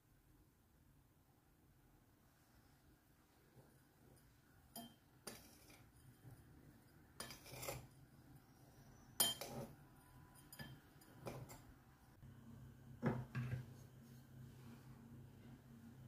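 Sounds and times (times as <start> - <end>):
spoon scraping glass bowl: 4.8 - 11.7.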